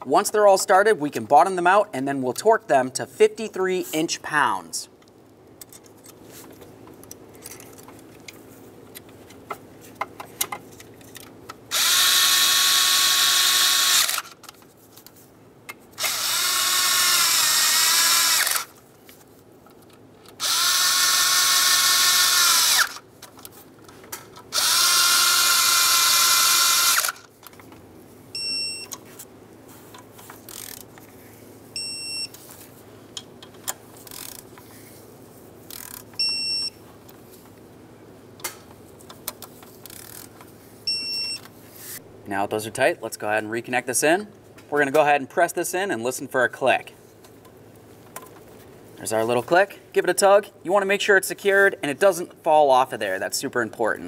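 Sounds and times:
power socket driver whirring: 0:11.7 - 0:14.4, 0:16.0 - 0:18.8, 0:20.4 - 0:23.0, 0:24.5 - 0:27.3
torque wrench beeps: 0:28.4 - 0:29.0, 0:31.8 - 0:32.4, 0:36.2 - 0:36.8, 0:40.9 - 0:41.4.

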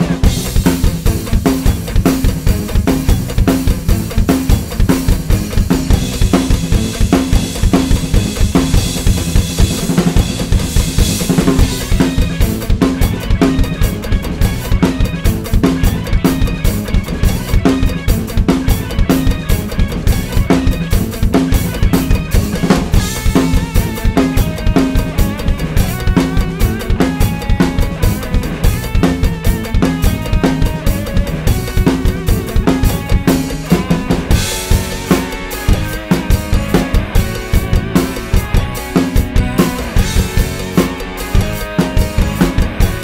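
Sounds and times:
backing track: 0:00.0 - 0:43.0
drum kit groove: 0:00.0 - 0:43.0.

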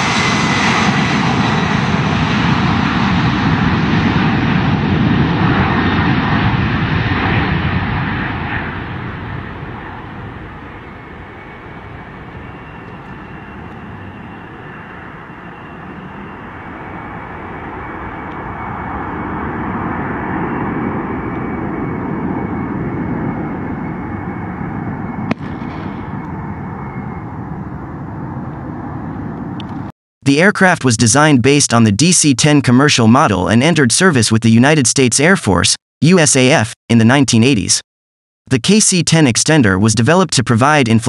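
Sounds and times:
faint high turbine whine: 0:00.0 - 0:29.9
jet engine rumble: 0:00.0 - 0:29.9.

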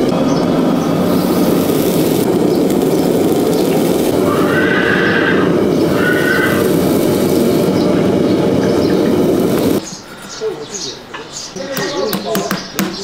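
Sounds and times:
loud steady low noise: 0:00.0 - 0:09.9
horse neighing: 0:04.2 - 0:06.8.

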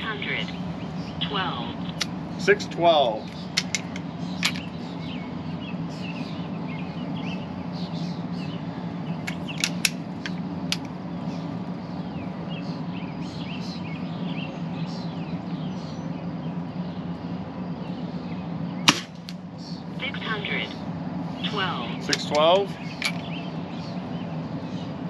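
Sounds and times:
birds chirping: 0:00.0 - 0:25.0
steady low hum: 0:00.0 - 0:25.0
air rifle action clicks: 0:03.6 - 0:04.7, 0:09.2 - 0:10.9.

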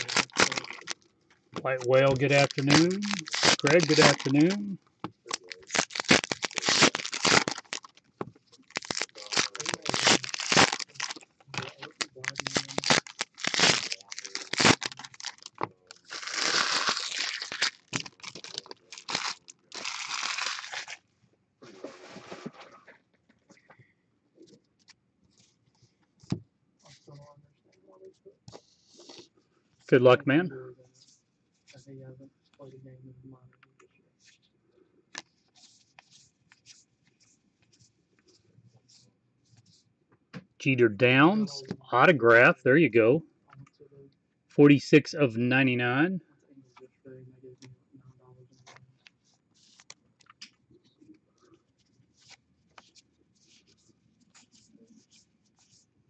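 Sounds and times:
wrapper being torn and crinkled: 0:00.0 - 0:01.0, 0:01.9 - 0:08.0, 0:08.6 - 0:21.0.

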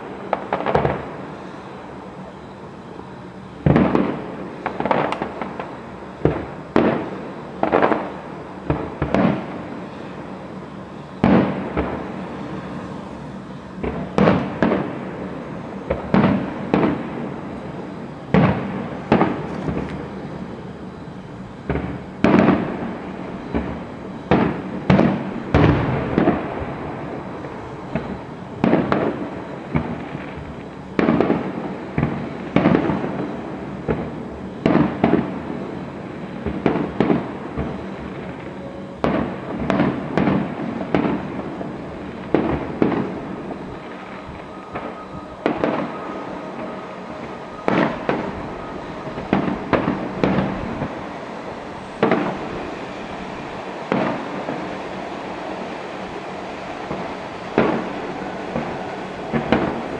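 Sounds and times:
firework shells bursting: 0:00.0 - 0:01.6, 0:03.6 - 0:10.1, 0:11.0 - 0:17.7, 0:18.3 - 0:20.2, 0:21.6 - 0:35.4, 0:36.3 - 0:59.9.

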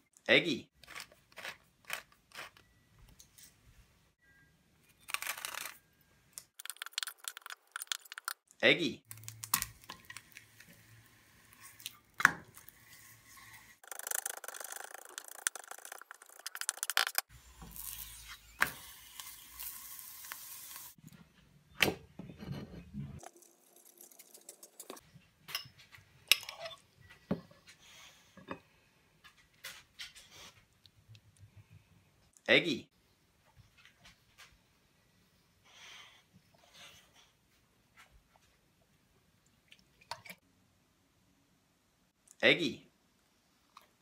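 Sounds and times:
tortilla sizzling in pan: 0:17.4 - 0:21.0.

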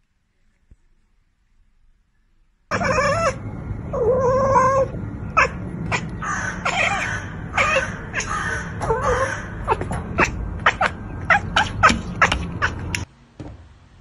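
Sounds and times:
cat chirps and meows: 0:02.7 - 0:03.4, 0:04.0 - 0:12.9.

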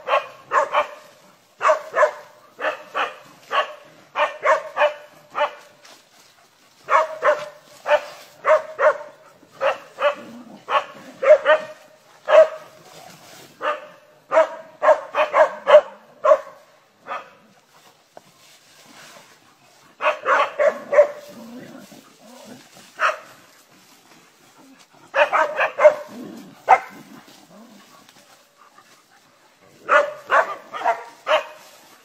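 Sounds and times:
dog barking: 0:00.0 - 0:05.8, 0:06.8 - 0:12.8, 0:13.6 - 0:17.4, 0:20.0 - 0:21.4, 0:23.0 - 0:23.5, 0:25.1 - 0:27.1, 0:29.8 - 0:31.6.

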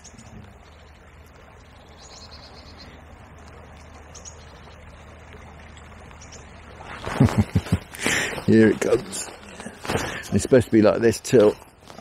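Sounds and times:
river current flowing: 0:00.0 - 0:12.0
rain falling: 0:06.2 - 0:10.9.

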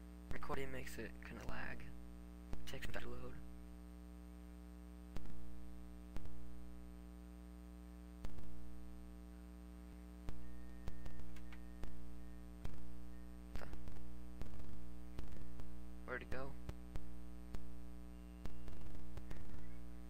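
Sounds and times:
steady electrical hum: 0:00.0 - 0:20.0
computer mouse clicking: 0:11.3 - 0:11.6.

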